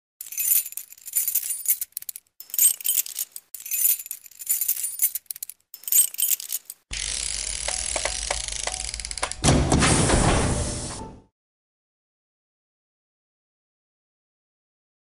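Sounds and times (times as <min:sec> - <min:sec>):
metallic jingling and clinking: 0:00.2 - 0:06.9.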